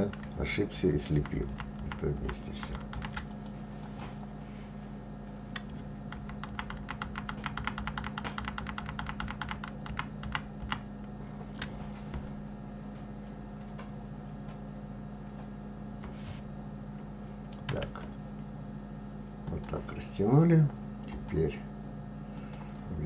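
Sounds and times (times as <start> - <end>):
computer keyboard clicking: 0.0 - 0.4, 1.1 - 3.6, 5.5 - 10.8
steady low hum: 0.0 - 23.0.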